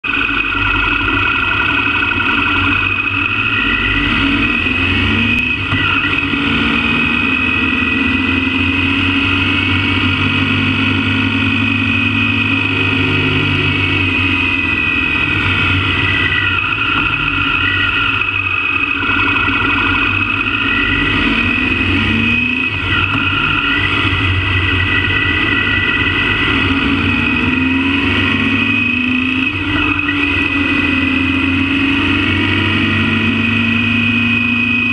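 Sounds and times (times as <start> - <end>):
motorbike engine revving: 0.0 - 34.9.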